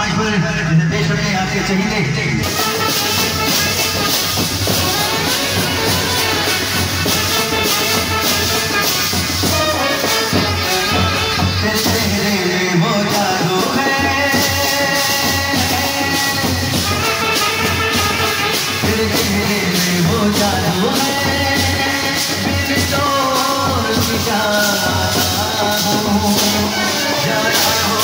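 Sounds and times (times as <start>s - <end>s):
procession band singing melody: 2.3s - 28.0s
steady drum beat: 2.4s - 28.0s.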